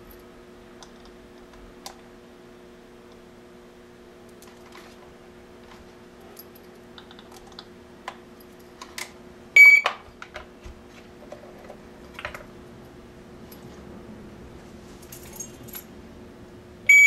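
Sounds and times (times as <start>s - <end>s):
short high beep: 9.6s - 9.9s.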